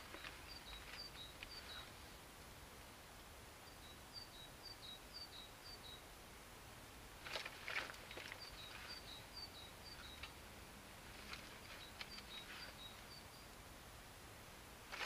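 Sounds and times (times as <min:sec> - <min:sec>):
close rustling and crackling: 0:07.2 - 0:09.1, 0:11.0 - 0:12.8.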